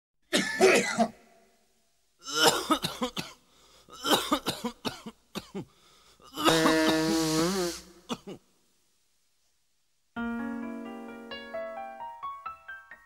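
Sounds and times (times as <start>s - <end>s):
person coughing: 0.3s - 1.3s, 2.2s - 5.7s, 6.3s - 8.4s.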